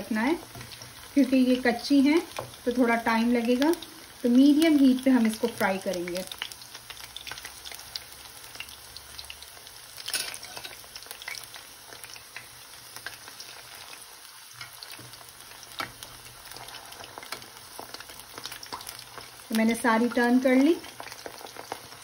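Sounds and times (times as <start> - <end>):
chicken sizzling in hot oil: 0.0 - 22.0
spatula clicking and scraping pan: 10.0 - 19.3.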